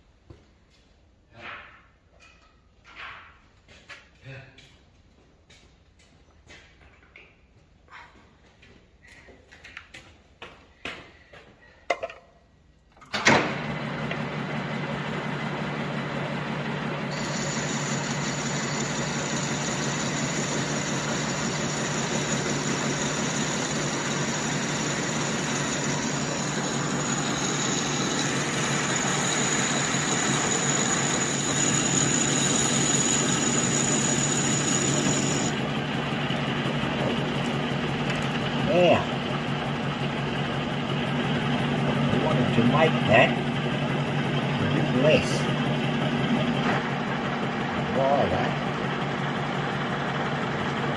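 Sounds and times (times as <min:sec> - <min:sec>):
metal lathe running with hum: 0:13.4 - 0:50.9.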